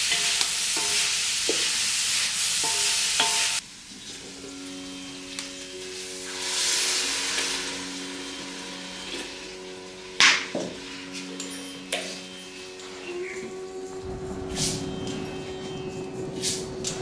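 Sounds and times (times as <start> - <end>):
brass pot clunking down: 10.1 - 13.4.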